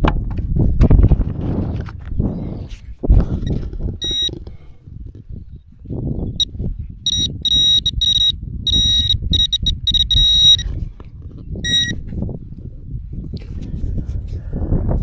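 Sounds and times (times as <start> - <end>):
metal detector beeping: 4.0 - 4.3, 7.1 - 10.7, 11.6 - 12.0.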